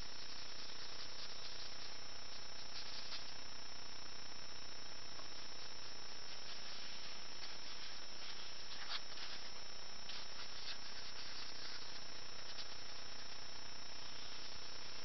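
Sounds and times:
steady hiss: 0.0 - 15.0
thin high whine: 0.0 - 15.0
paintbrush brushing on paper: 0.2 - 3.4, 6.3 - 13.4, 14.0 - 14.7.

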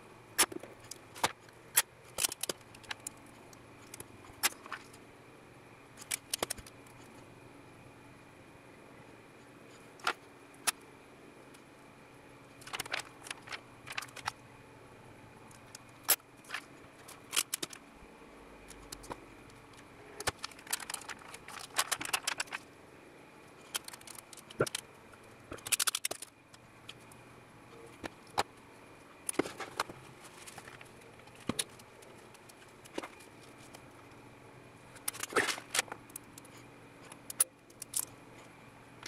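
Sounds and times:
plastic film crinkling: 12.6 - 14.4, 20.2 - 22.7.

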